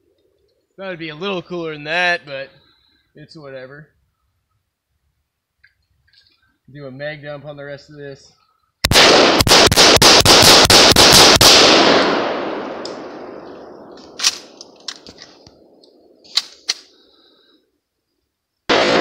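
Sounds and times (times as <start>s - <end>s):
rifle shots: 8.8s - 15.1s, 18.7s - 19.0s.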